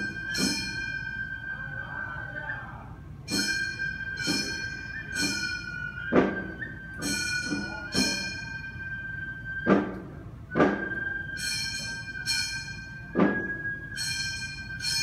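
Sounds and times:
taiko drum sharp beats: 0.0s - 1.1s, 3.3s - 8.8s, 9.6s - 15.0s
hand gongs clanging: 0.0s - 1.4s, 3.3s - 9.0s, 9.8s - 15.0s
bamboo flute high sustained line: 0.0s - 15.0s.

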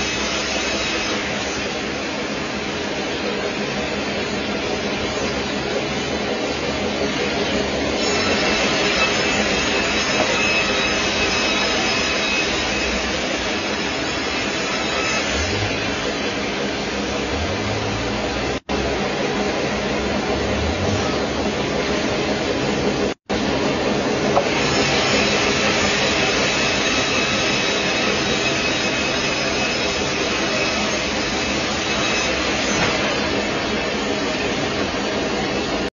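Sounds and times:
band sawmill whirring: 2.4s - 35.7s
low hum: 15.3s - 23.1s.

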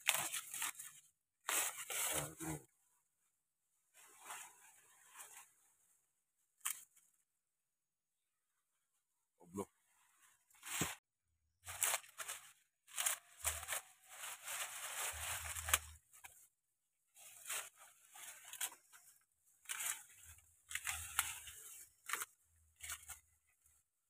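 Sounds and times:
maize leaves rustling and tearing: 0.0s - 2.5s, 11.6s - 16.4s, 17.1s - 23.7s.

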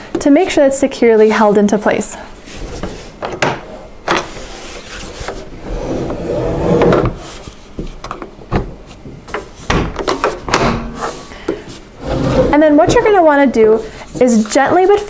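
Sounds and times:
plastic chair legs scraping: 12.0s - 13.7s.

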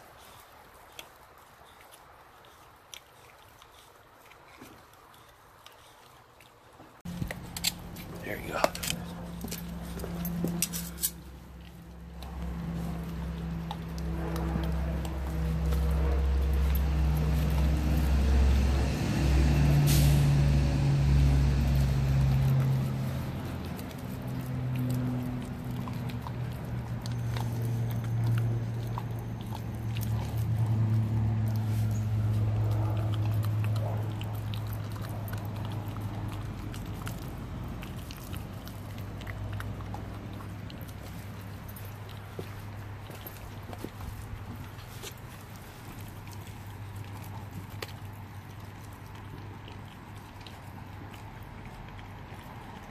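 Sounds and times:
puppy crunching frozen fish: 0.0s - 52.9s
heavy vehicle engine humming: 7.0s - 48.5s
air brake hiss: 19.8s - 20.3s.

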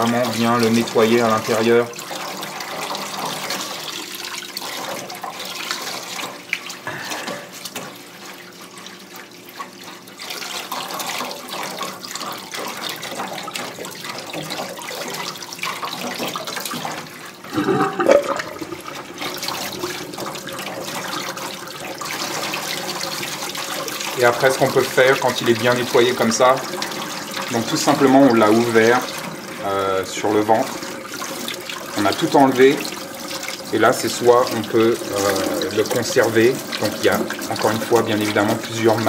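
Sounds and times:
water splashing off fish: 4.6s - 24.0s.

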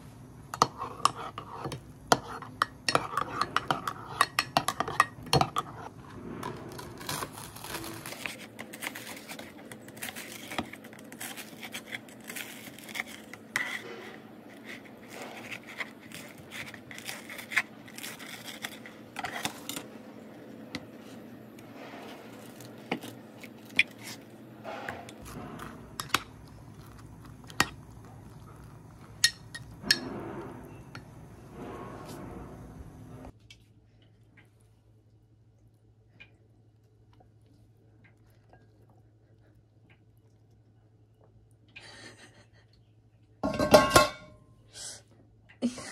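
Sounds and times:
spoon stirring in ceramic mug: 0.5s - 6.0s, 25.2s - 30.0s.

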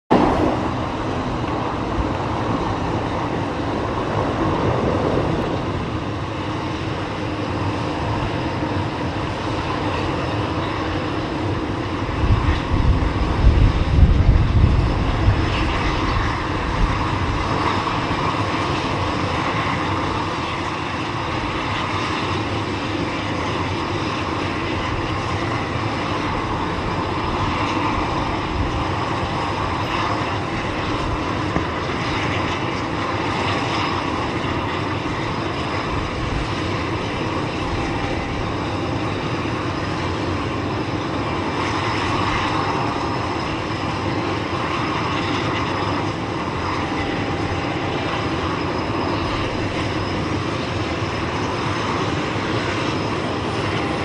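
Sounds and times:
low rumble: 0.1s - 6.0s
turboprop engines idling: 0.1s - 54.0s.

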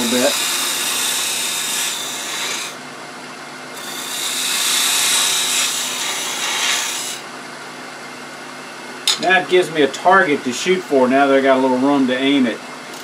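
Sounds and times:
lathe running: 0.0s - 2.8s, 3.8s - 7.2s.

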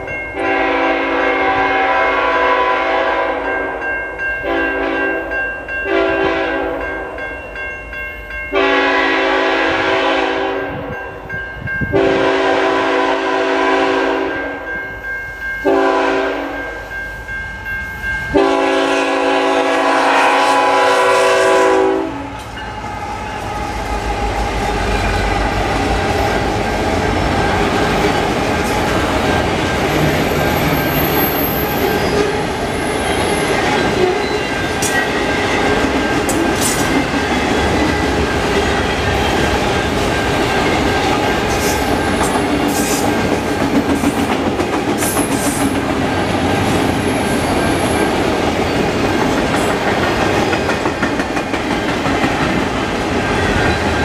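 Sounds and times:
locomotive horn blasts: 0.4s - 3.4s, 4.4s - 5.2s, 5.9s - 6.8s, 8.5s - 10.8s, 11.9s - 14.5s, 15.6s - 16.6s, 18.3s - 22.4s
freight train wheels rumbling: 15.6s - 54.0s.

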